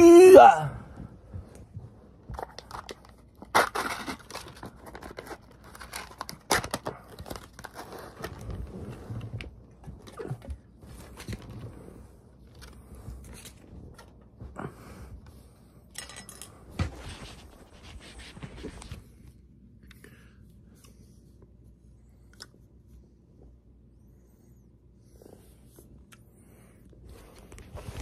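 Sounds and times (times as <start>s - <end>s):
packaging rustling and scraping: 2.3s - 14.3s, 16.7s - 19.1s
paper lid crinkles: 2.4s - 8.7s.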